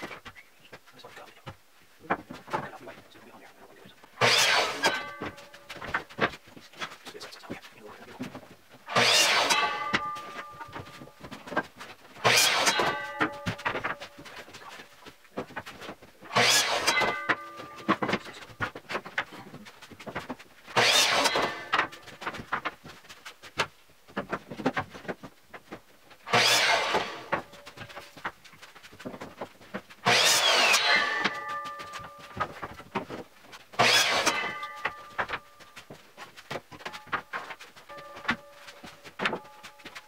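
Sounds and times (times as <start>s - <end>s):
miter saw cutting wood: 4.2s - 5.5s, 8.9s - 10.8s, 12.2s - 14.0s, 16.3s - 18.2s, 20.7s - 22.2s, 26.3s - 28.0s, 30.0s - 32.6s, 33.8s - 35.3s
saw blade whine spinning down: 8.9s - 10.4s, 26.3s - 27.4s, 30.1s - 32.3s.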